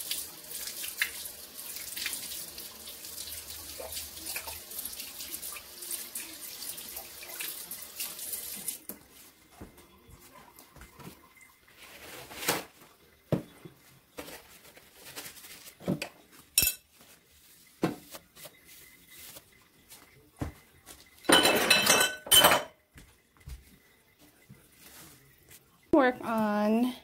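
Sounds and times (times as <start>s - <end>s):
dishes knocking and clinking: 13.3s - 14.4s, 15.8s - 16.9s, 20.4s - 23.1s
dishes clattering and ringing: 16.0s - 17.0s, 21.2s - 22.8s.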